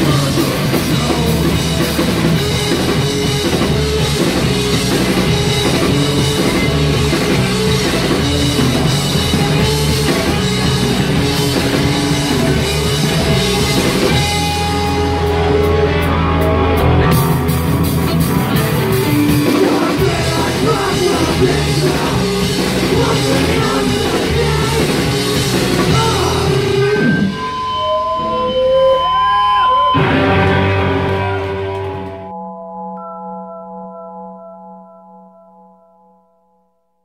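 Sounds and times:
drum kit: 0.0s - 27.6s
distorted electric guitar: 0.0s - 32.4s
bass guitar: 0.0s - 32.9s
shouted vocals: 19.5s - 27.1s.

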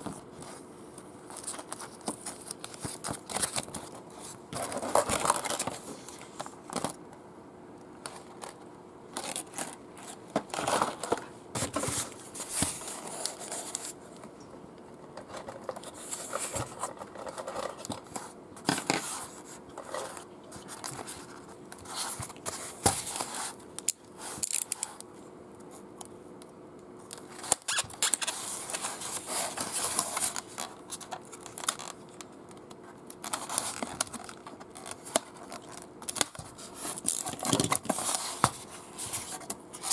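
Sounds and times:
plastic blister trays crinkling: 1.2s - 7.0s, 8.0s - 14.3s, 15.1s - 25.1s, 27.1s - 39.9s
cardboard and styrofoam rustling: 1.3s - 6.9s, 9.2s - 14.0s, 27.4s - 31.9s, 33.2s - 39.9s.

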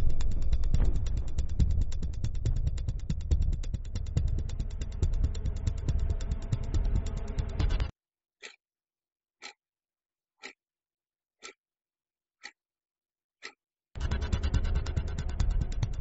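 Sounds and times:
background music: 0.0s - 7.9s, 14.0s - 16.0s
wall clock ticking: 9.4s - 9.6s, 11.4s - 11.6s.

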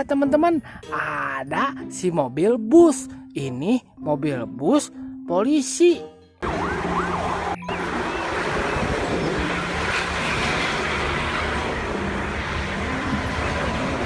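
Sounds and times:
buses driving past on highway: 6.4s - 14.0s.

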